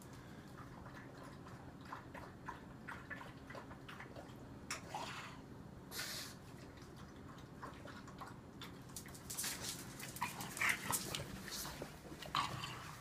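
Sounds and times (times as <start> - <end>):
dog lapping water: 0.1 - 5.3, 6.4 - 9.2.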